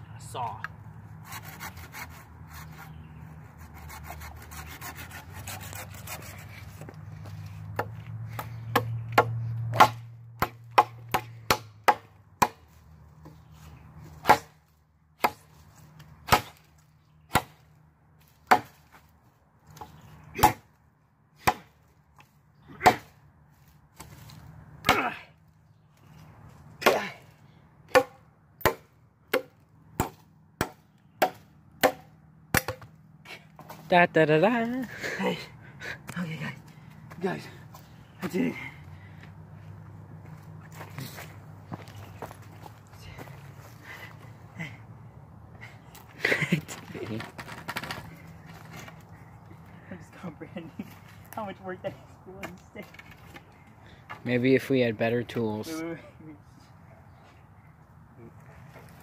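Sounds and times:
machete sawing wood: 1.1s - 12.7s, 14.1s - 14.6s, 15.2s - 17.6s, 19.8s - 20.7s, 21.4s - 21.8s, 22.7s - 23.2s, 27.9s - 32.9s
machete chopping wood: 7.7s - 12.7s, 14.2s - 14.6s, 15.2s - 15.5s, 16.2s - 17.7s, 18.4s - 18.8s, 19.7s - 20.7s, 21.4s - 21.8s, 22.7s - 23.2s, 24.8s - 25.2s, 26.8s - 27.3s, 27.9s - 32.9s.

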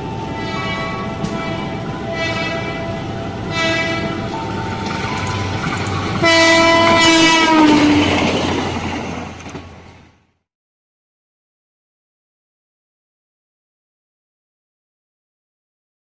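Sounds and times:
train horn blasts: 0.0s - 5.5s, 6.2s - 8.2s
rumble of moving trains: 0.0s - 10.5s.

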